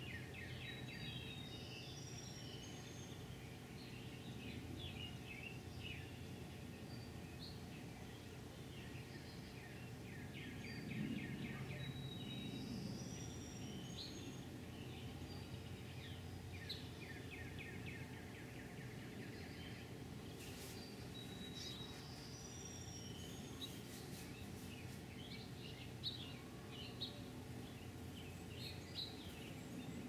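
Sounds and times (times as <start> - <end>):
faint background hum: 0.0 - 30.0
small birds chirping: 0.0 - 30.0.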